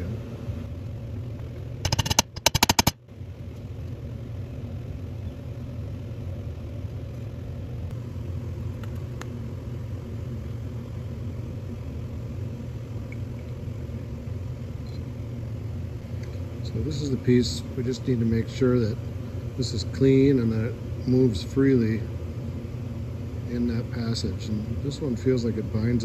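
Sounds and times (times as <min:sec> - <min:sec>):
workshop background hum: 0:00.0 - 0:26.0
hammer tapping metal punch: 0:01.9 - 0:03.0.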